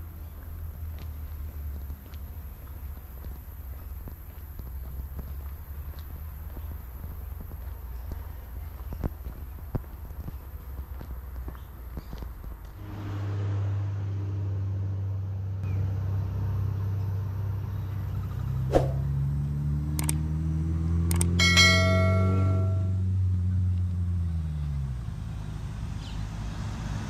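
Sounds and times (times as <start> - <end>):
low hum rising in pitch: 12.8 - 17.9, 18.5 - 23.5
click sound effects: 20.0 - 20.2, 21.1 - 22.9
bell chime: 21.4 - 23.0.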